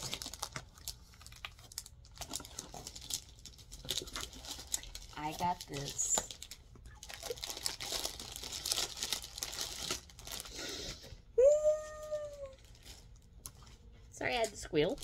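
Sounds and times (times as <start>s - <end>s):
packaging crinkling and rustling: 0.0s - 10.6s, 12.0s - 14.0s
woman squealing with excitement: 11.4s - 12.6s.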